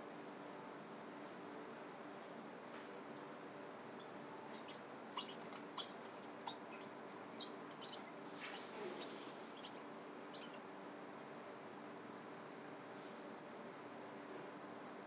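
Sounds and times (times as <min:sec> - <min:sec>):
high chirps: 0:04.0 - 0:10.6.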